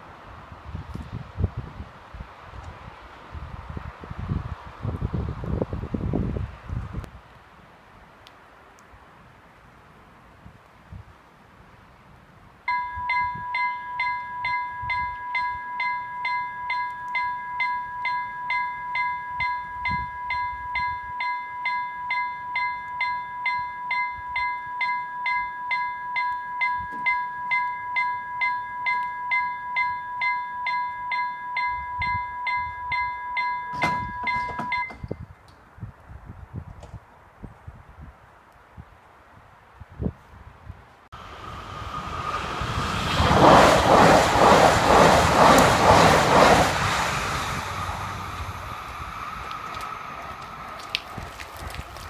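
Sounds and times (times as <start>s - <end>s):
electronic level-crossing bell: 12.7s - 35.2s.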